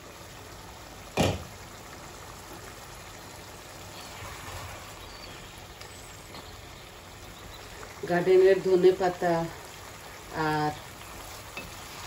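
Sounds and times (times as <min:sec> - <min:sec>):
curry bubbling in a pot: 0:00.0 - 0:12.0
wooden spoon stirring: 0:11.0 - 0:12.0.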